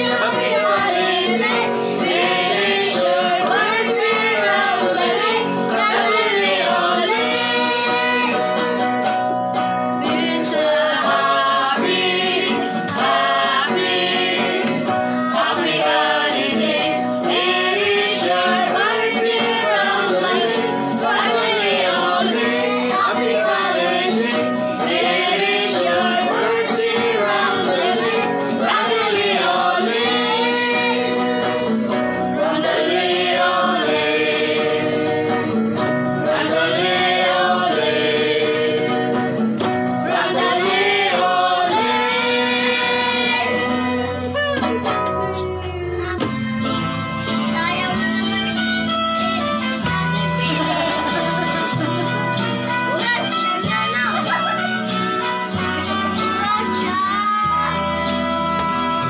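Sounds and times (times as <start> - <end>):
group singing together: 0.0 - 46.8, 49.4 - 54.5
instrumental backing music: 0.0 - 59.0.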